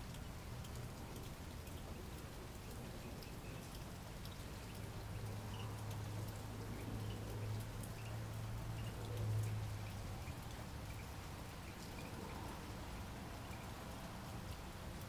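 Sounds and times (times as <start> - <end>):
drops ticking: 0.0 - 12.4
rain falling: 0.0 - 15.0.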